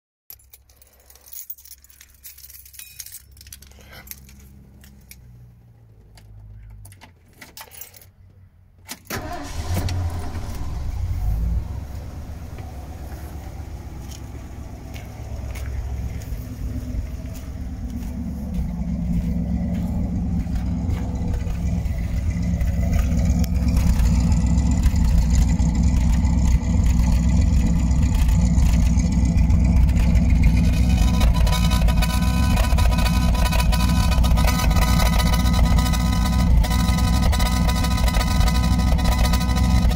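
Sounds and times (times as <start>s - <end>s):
keys jingling: 0.3s - 5.3s, 6.2s - 8.2s
engine starting and idling: 8.9s - 39.9s.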